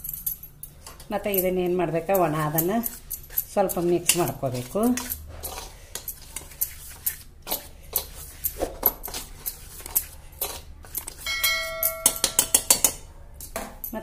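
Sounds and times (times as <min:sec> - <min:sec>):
whisk scraping metal bowl: 0:01.2 - 0:12.8
bell-like metallic ring: 0:11.2 - 0:12.7.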